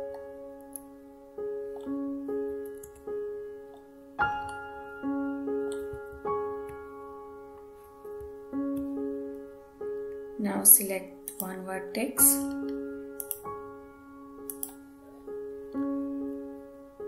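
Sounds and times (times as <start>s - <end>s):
soft slow piano music: 0.0s - 17.0s.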